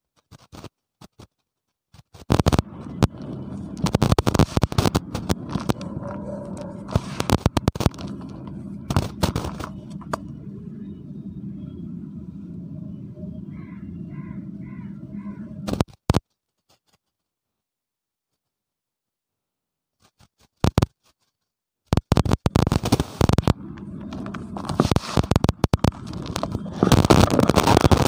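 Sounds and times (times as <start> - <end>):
microphone crackles and pops: 0.2 - 10.4, 15.6 - 16.2, 20.1 - 21.1, 21.9 - 28.0
low electrical buzz: 2.3 - 15.8, 22.5 - 28.0.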